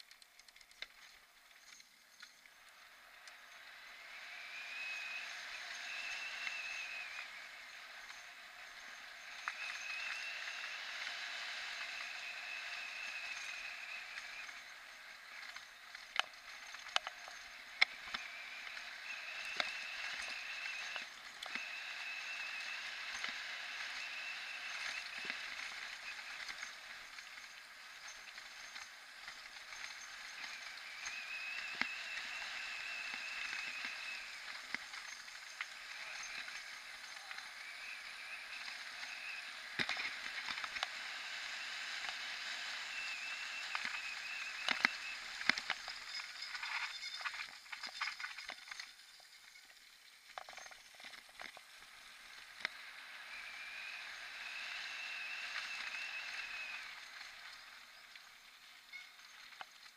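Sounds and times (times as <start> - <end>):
bike tyre and wind noise: 0.0 - 59.9
high buzzing: 2.4 - 48.4.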